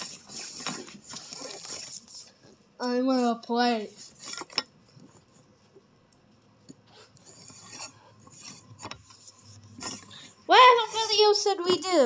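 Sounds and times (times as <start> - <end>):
phone rubbing and scraping: 0.0 - 2.5, 3.9 - 5.6, 6.9 - 11.8.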